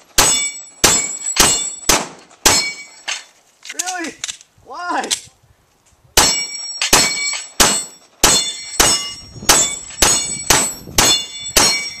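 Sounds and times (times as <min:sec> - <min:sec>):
steel plate ringing: 0:00.2 - 0:03.1, 0:06.2 - 0:12.0.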